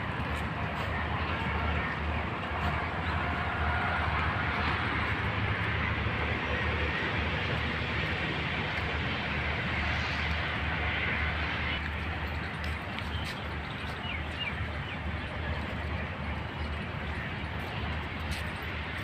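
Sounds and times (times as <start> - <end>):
road traffic noise: 0.0 - 19.0.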